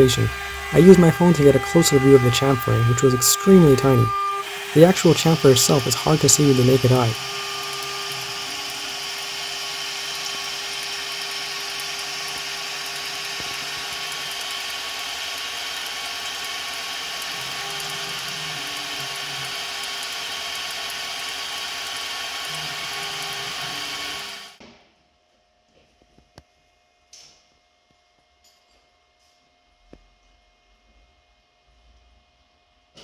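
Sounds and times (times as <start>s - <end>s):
milling machine spindle hiss: 0.0s - 24.6s.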